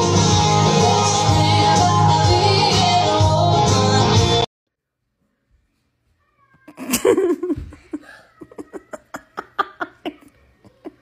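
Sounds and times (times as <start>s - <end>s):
person laughing: 6.8s - 11.0s.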